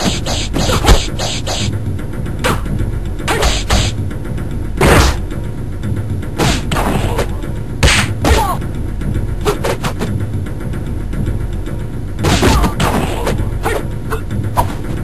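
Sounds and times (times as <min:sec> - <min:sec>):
cartoon punches and thuds: 0:00.0 - 0:01.7, 0:03.2 - 0:04.0, 0:04.8 - 0:05.2, 0:06.4 - 0:08.6, 0:12.2 - 0:13.8
low background music: 0:00.0 - 0:15.0.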